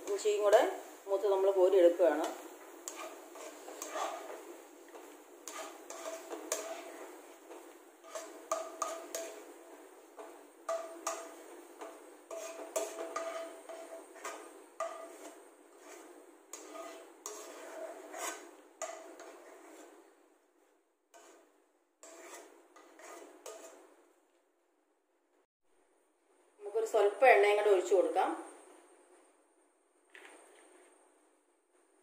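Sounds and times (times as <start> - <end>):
metal spoon clinking against pan: 5.5 - 7.0, 8.0 - 9.5, 10.2 - 15.2.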